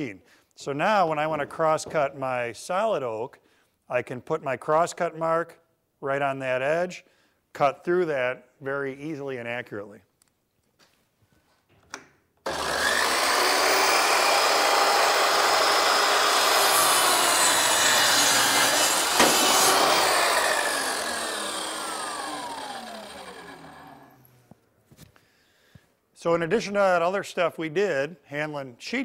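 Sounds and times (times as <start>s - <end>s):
circular saw cutting wood: 12.5s - 24.3s
saw blade spinning down: 12.5s - 24.4s.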